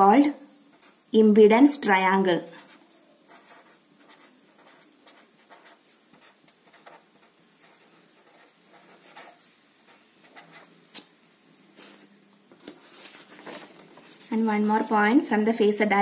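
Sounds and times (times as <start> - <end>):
pen scratching on paper: 2.6 - 10.7.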